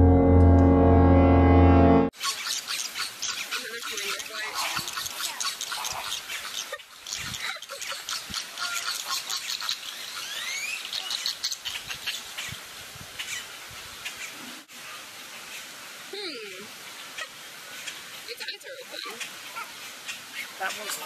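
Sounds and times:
flamingos calling: 0:02.2 - 0:12.6.

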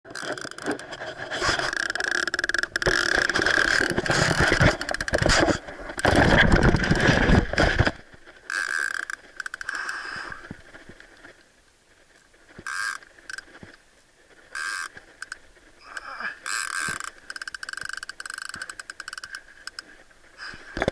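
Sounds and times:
fast clicking bursts: 0:00.1 - 0:07.1, 0:16.5 - 0:19.8
clothing rubbing on microphone: 0:00.6 - 0:02.0, 0:02.8 - 0:08.4.

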